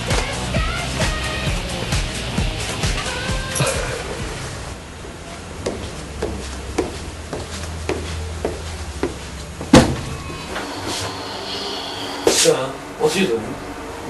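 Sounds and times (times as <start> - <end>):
footsteps on hard floor: 5.0 - 11.1
loud bang: 9.7 - 12.6.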